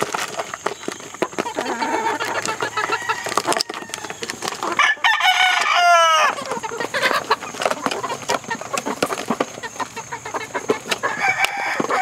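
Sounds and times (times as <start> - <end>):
chickens clucking: 0.0 - 12.0
chickens pecking clicks: 0.0 - 12.0
rooster crowing: 2.7 - 4.2, 4.8 - 6.4, 11.0 - 12.0.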